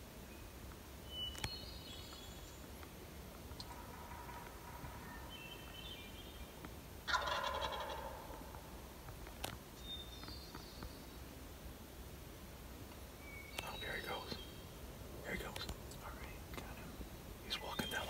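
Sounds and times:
turkey gobbling: 3.6 - 5.3, 7.1 - 8.5.

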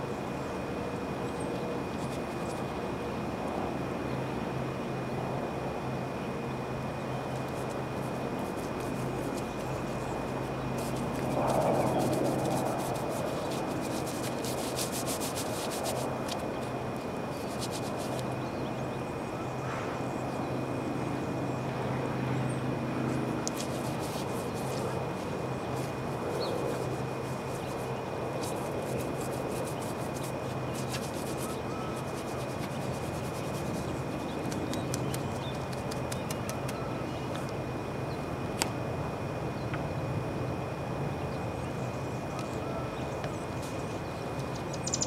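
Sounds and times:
low machine hum: 0.0 - 45.0
hand rubbing and scraping: 7.4 - 18.3, 23.2 - 36.8.

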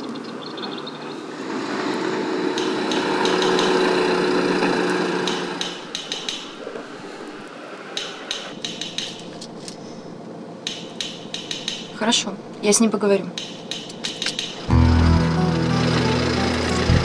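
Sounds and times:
engine-like drone: 0.6 - 6.3, 14.4 - 17.0.

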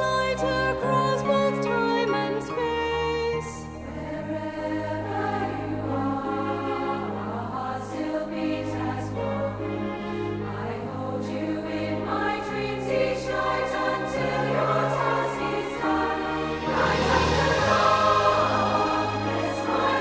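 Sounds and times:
slow background music: 0.0 - 20.0.

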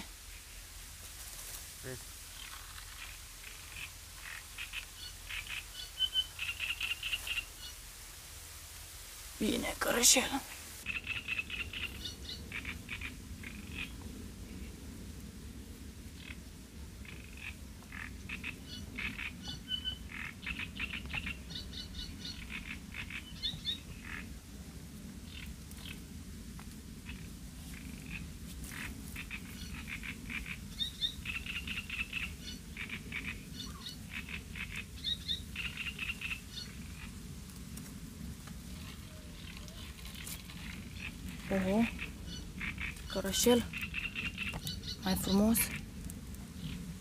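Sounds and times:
steady low rumble: 0.0 - 47.0
frogs croaking: 2.2 - 7.9, 9.4 - 14.9, 15.7 - 24.5, 26.9 - 47.0.

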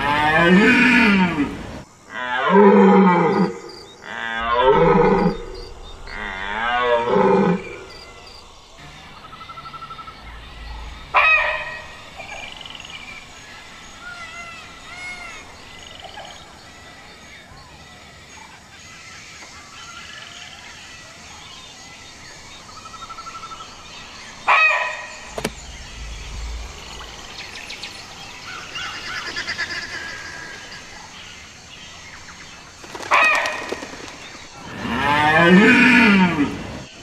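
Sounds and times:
faint bird chirps: 3.3 - 34.6.

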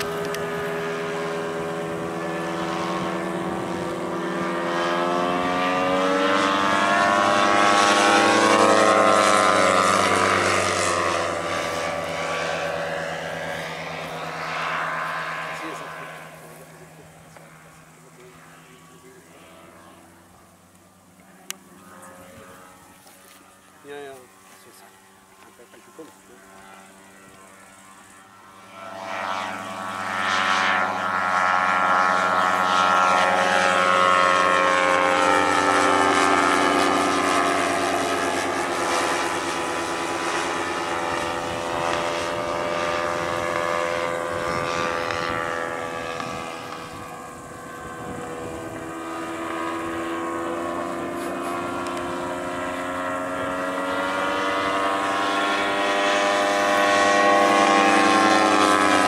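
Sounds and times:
model plane engine in flight: 0.0 - 59.0.

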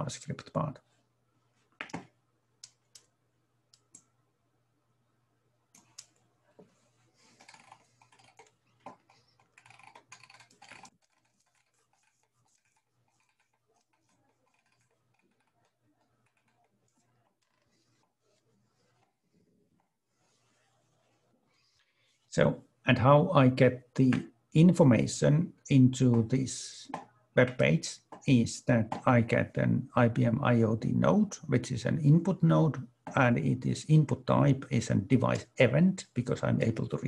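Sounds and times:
computer keyboard clicks: 7.4 - 11.6.

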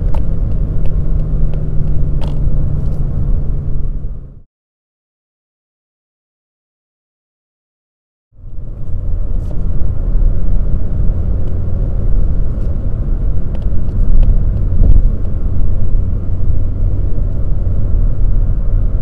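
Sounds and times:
car engine drone in cabin: 0.0 - 4.5, 8.4 - 19.0.

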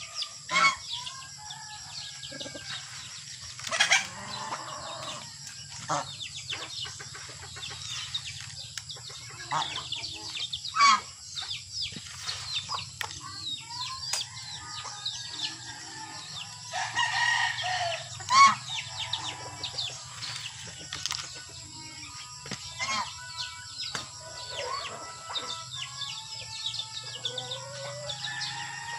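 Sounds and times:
chickens chirping and clucking: 0.0 - 28.9.

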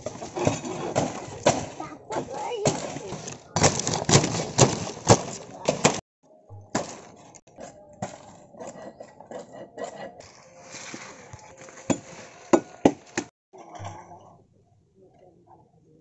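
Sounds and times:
machete chopping stalks: 2.6 - 6.0, 6.6 - 7.2.

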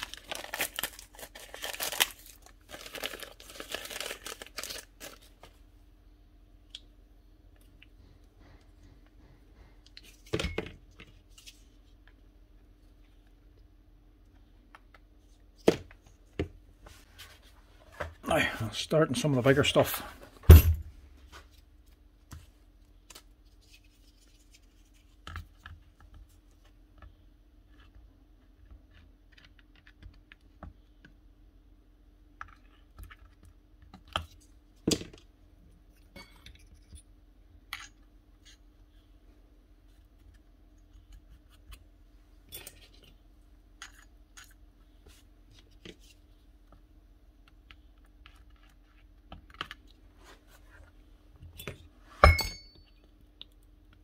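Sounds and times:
ringing metal clank: 52.2 - 52.9.

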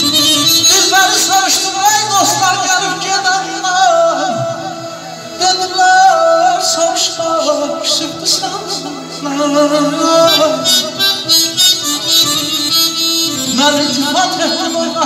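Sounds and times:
button accordion: 0.0 - 1.6, 10.1 - 15.0
keyboard: 0.0 - 15.0
man singing into a microphone: 0.0 - 15.0.

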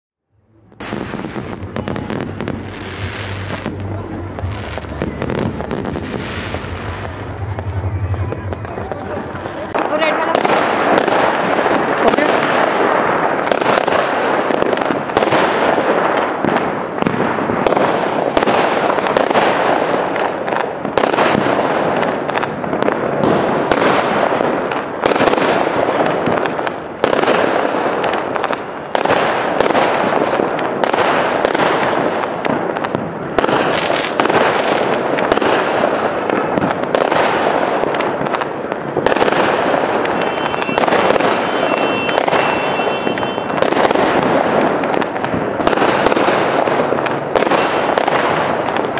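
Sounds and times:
firework crackle and rumble: 0.4 - 48.9
firework shells bursting: 0.7 - 12.2, 33.5 - 48.9.

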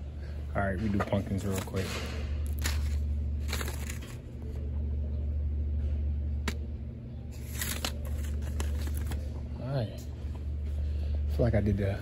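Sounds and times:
low background hum: 0.0 - 12.0
paper packet rustling: 1.0 - 4.4, 7.4 - 9.3.

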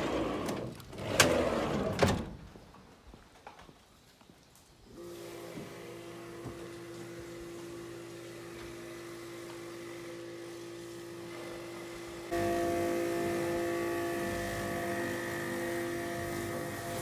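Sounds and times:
machine humming: 5.0 - 17.0.

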